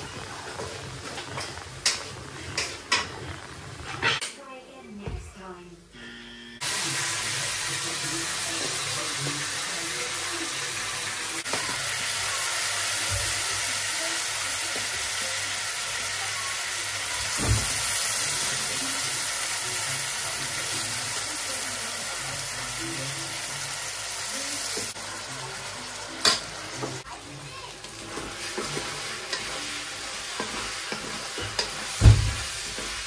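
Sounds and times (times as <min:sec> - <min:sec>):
noodles sizzling in a pan: 0:00.0 - 0:04.2, 0:06.6 - 0:33.0.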